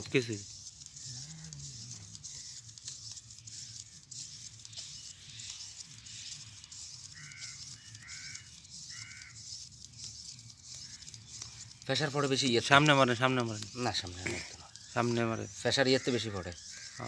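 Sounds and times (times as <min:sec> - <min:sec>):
high-pitched hiss: 0:00.0 - 0:17.0
short pitched animal calls: 0:00.9 - 0:05.0, 0:06.7 - 0:09.5
faint clicks: 0:04.5 - 0:12.0.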